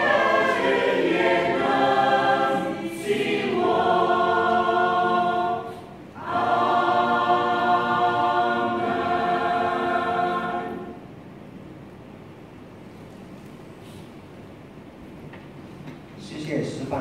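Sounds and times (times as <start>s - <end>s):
choir singing hymn chord: 0.0s - 11.2s.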